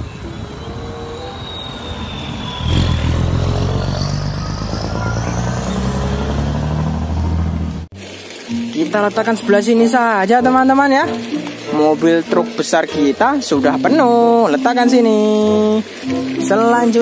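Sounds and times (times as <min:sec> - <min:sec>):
high whine: 0:00.0 - 0:07.4
truck diesel engine accelerating: 0:00.0 - 0:08.2.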